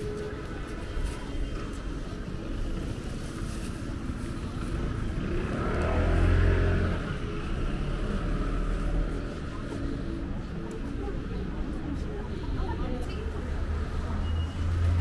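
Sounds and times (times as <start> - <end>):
street background noise: 0.0 - 15.0
vehicle passing by: 5.0 - 9.4.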